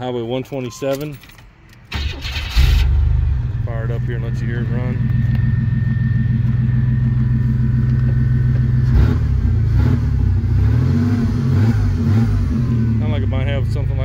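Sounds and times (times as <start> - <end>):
car engine idling: 1.9 - 10.7
car engine revving: 2.0 - 14.0.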